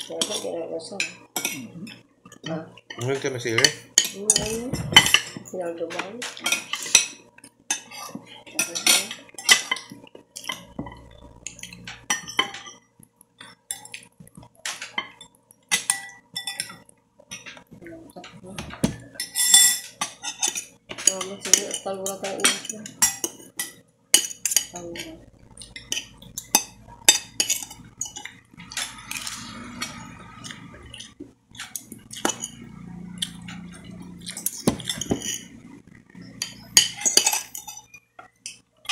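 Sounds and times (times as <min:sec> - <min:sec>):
cutlery clinking on a plate: 0:13.4 - 0:17.6, 0:18.8 - 0:24.7, 0:34.3 - 0:35.6, 0:36.3 - 0:38.9.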